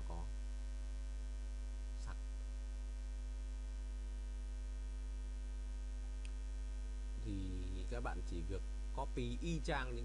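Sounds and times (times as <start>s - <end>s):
electrical hum with low drone: 0.0s - 10.0s
faint tick: 6.2s - 6.4s.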